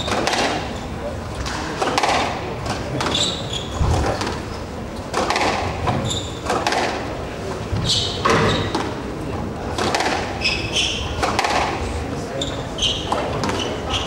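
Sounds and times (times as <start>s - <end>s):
murmur of crowd voices: 0.0s - 14.0s
shoes squeaking on wooden floor: 3.1s - 4.6s, 5.9s - 6.4s, 7.7s - 9.0s
squash ball knocking: 3.8s - 7.0s, 9.8s - 10.4s.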